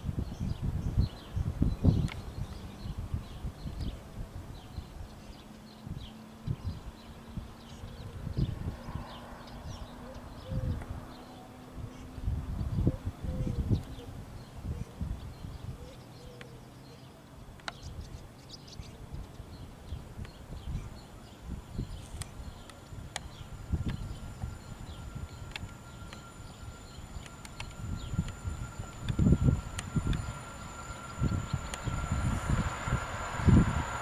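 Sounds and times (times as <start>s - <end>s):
wind buffeting microphone: 0.0s - 16.1s, 17.4s - 34.0s
faint high electric train whine: 0.0s - 34.0s.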